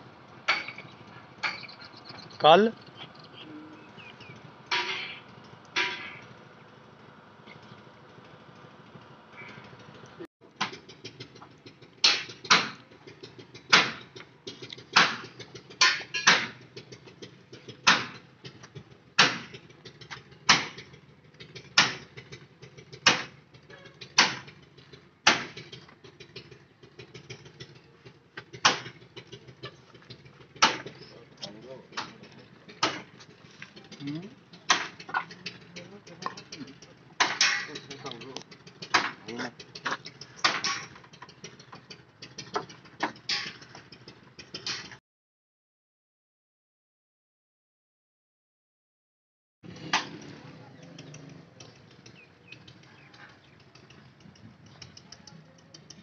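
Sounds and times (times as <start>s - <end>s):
sharp knocks: 12.0s - 12.8s, 13.6s - 14.3s, 14.9s - 16.6s, 17.6s - 18.6s, 19.2s - 20.9s, 21.7s - 22.2s, 23.0s - 23.4s, 24.0s - 24.5s, 25.2s - 25.8s, 28.4s - 29.0s, 30.6s - 31.0s, 31.9s - 33.2s, 34.6s - 35.3s, 37.2s - 37.8s, 39.8s - 41.0s.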